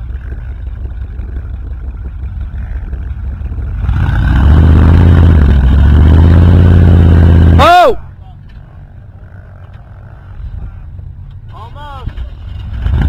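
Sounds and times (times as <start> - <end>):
engine revving under heavy load: 2.5 - 8.0, 12.5 - 13.0.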